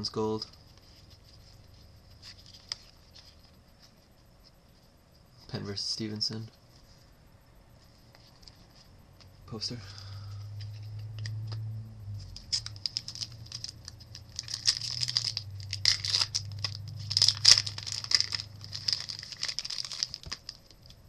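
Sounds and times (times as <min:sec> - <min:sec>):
foil wrapper tearing and crinkling: 0:12.4 - 0:21.0.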